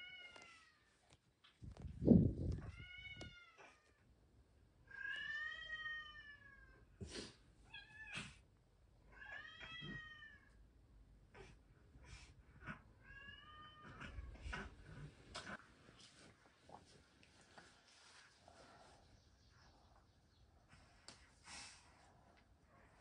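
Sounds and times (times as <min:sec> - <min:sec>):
cat meowing: 0:02.6 - 0:03.9, 0:09.1 - 0:10.5.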